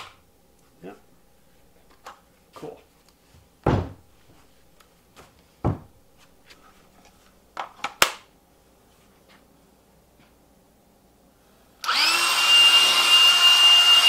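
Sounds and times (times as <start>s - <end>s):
power tool thumping on workbench: 3.7s - 4.0s.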